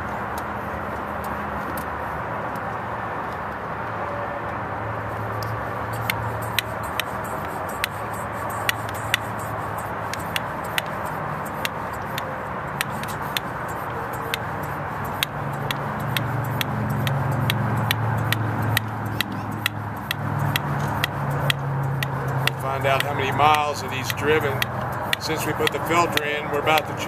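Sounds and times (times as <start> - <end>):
low rumble of freeway traffic: 0.0 - 27.0
hand pump clicking: 5.4 - 27.0.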